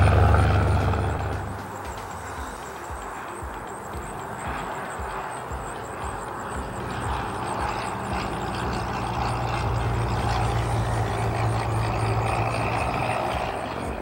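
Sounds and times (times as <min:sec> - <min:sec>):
propeller plane droning past: 0:00.0 - 0:14.0.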